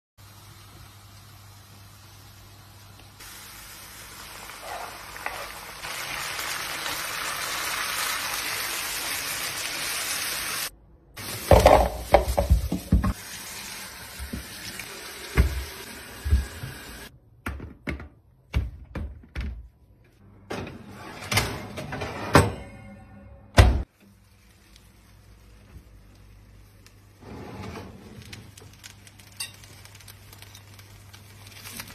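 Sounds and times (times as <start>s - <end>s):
kitchenware knocks and clunks: 11.4s - 13.2s, 17.4s - 19.7s
tap water running into sink: 14.0s - 17.1s.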